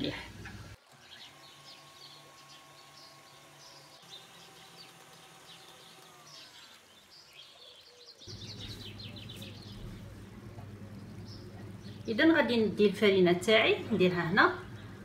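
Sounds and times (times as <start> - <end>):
small birds chirping: 0.0 - 15.0
stand mixer motor hum: 0.4 - 7.0.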